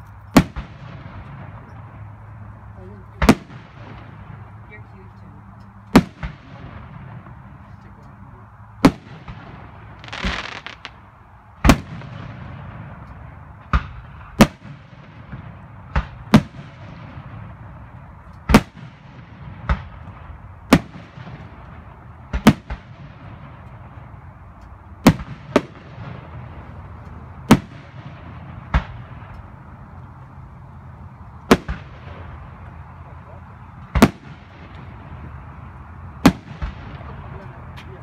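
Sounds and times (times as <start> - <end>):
firework shells booming: 0.3 - 2.1, 3.1 - 4.6, 5.9 - 7.7, 8.8 - 24.2, 25.0 - 29.6, 31.4 - 32.7, 33.8 - 35.6, 36.2 - 37.4.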